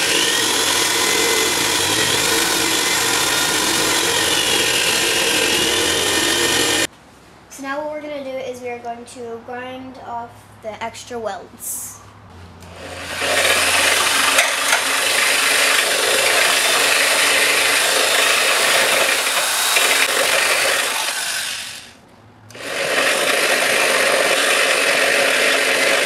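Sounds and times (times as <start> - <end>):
power grinder grinding metal: 0.0 - 6.9, 12.7 - 26.0.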